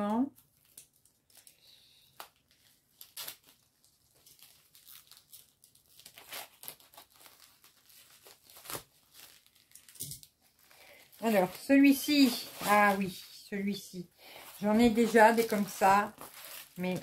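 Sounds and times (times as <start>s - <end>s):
packaging crinkling and rustling: 0.3s - 17.0s.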